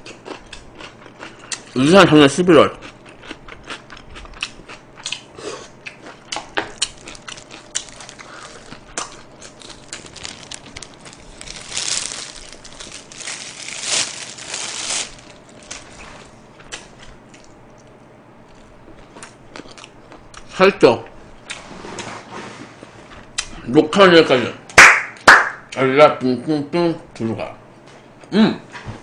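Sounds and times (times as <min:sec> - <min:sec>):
crunching and chewing fried chicken: 0:00.0 - 0:21.7
crinkling: 0:06.8 - 0:16.4.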